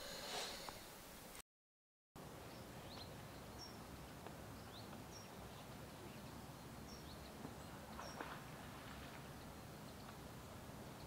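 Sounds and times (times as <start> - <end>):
soft steady hiss: 0.0 - 1.4, 2.2 - 11.0
bird chirping: 2.4 - 8.4.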